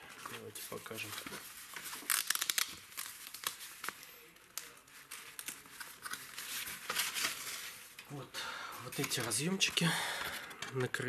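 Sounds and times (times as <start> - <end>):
plastic bag crinkling: 0.1 - 8.0.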